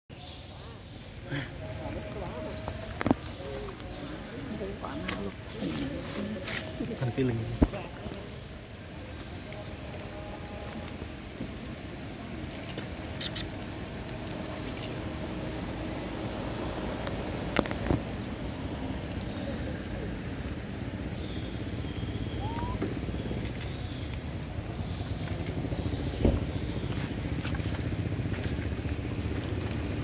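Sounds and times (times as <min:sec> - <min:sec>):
steady rain falling: 0:00.2 - 0:30.0
short rising squeak: 0:22.4 - 0:22.8.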